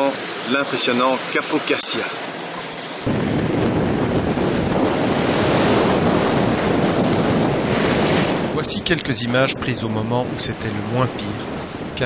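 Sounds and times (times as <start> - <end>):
rough sea rushing: 0.0 - 12.0
wind buffeting microphone: 2.5 - 12.0.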